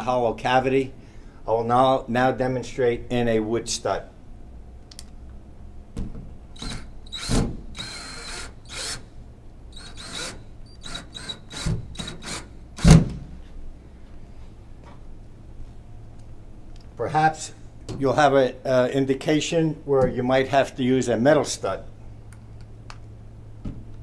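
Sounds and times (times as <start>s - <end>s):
cordless drill motor whining: 6.6s - 9.0s, 9.7s - 12.5s.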